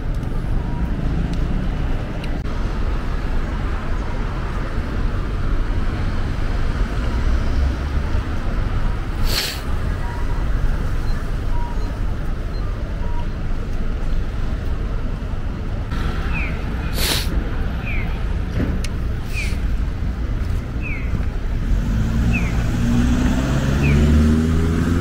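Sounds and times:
road traffic rumble: 0.0 - 25.0
hissing air burst: 9.2 - 9.7, 16.8 - 17.4.

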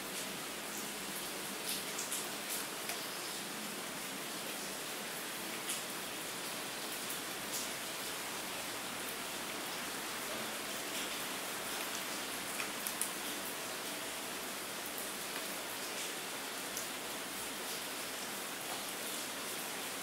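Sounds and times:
steady rain hiss: 0.0 - 20.0
raindrop ticks: 10.9 - 13.3.

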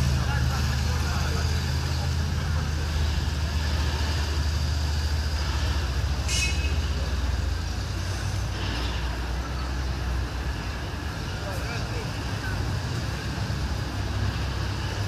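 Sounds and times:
heavy vehicle engine running: 0.0 - 15.0.

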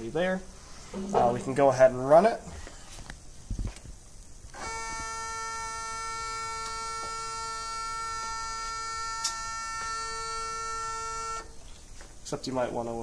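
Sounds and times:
motor whining: 4.5 - 11.6.

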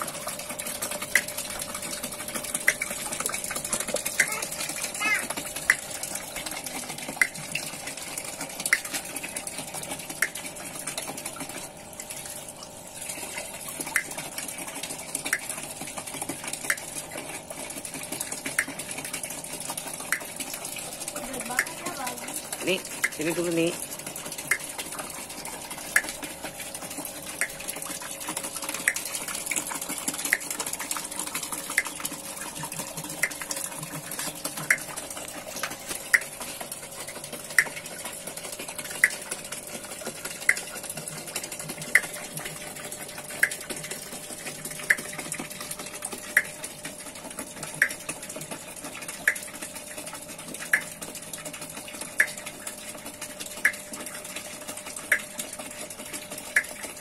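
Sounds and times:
water wheel crank clicking: 0.0 - 11.6, 21.1 - 49.5
water splashing onto a wheel: 0.0 - 57.0.

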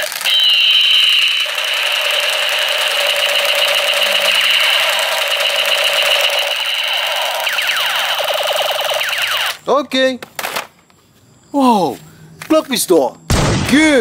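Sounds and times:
toy gun electronic buzzing: 0.0 - 9.6.

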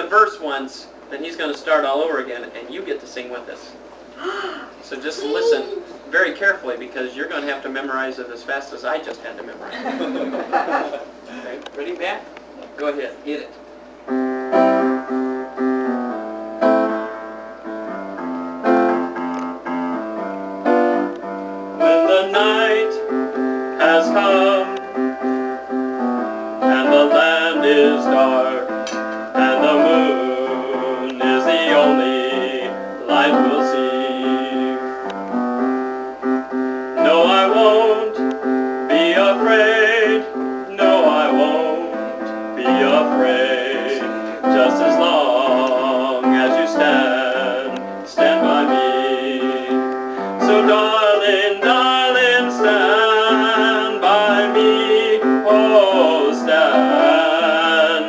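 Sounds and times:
upright piano chords: 13.9 - 58.0
man singing with vibrato: 21.8 - 35.0, 36.9 - 58.0.

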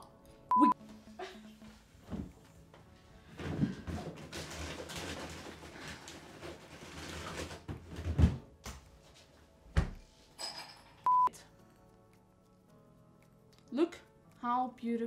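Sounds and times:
short electronic beep: 11.1 - 11.3.

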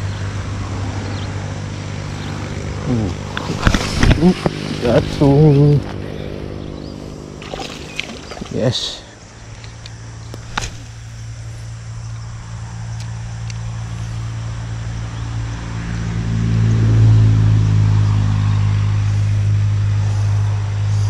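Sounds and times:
low engine hum: 0.0 - 21.0.

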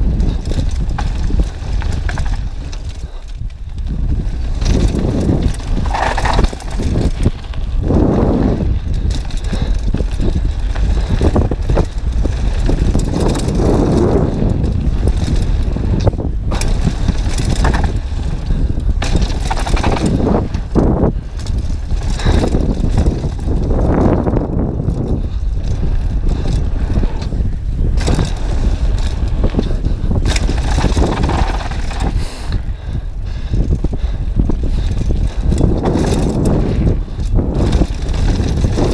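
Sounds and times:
bike knocks and rattles: 0.0 - 38.9
tyres rumbling on loose gravel: 0.0 - 38.9
wind noise on microphone: 0.0 - 38.9.

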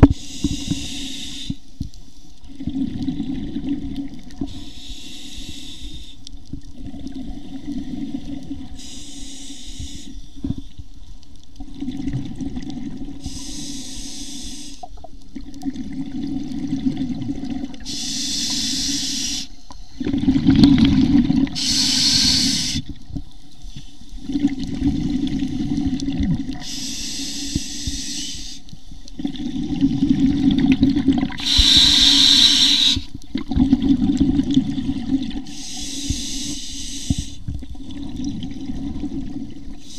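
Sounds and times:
regulator hiss on inhale: 0.0 - 2.3, 4.4 - 6.3, 8.6 - 10.9, 13.2 - 15.1, 17.8 - 20.0, 21.5 - 24.2, 26.5 - 29.2, 31.3 - 33.2, 35.4 - 38.0, 39.7 - 39.9
exhaled bubbles rumbling: 2.5 - 4.6, 6.5 - 8.8, 11.6 - 13.4, 15.3 - 17.9, 19.9 - 23.4, 24.2 - 26.6, 29.1 - 35.5, 37.4 - 39.8.

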